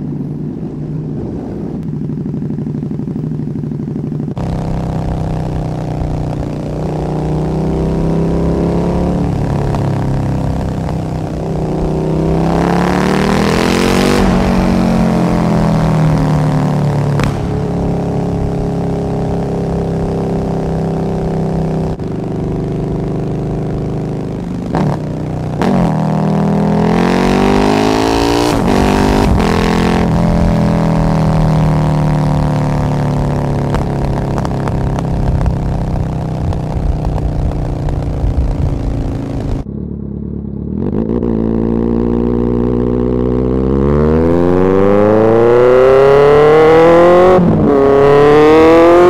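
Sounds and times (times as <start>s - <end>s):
motorcycle engine revving: 0.0s - 49.0s
sharp cracks: 17.0s - 19.4s, 33.6s - 39.7s.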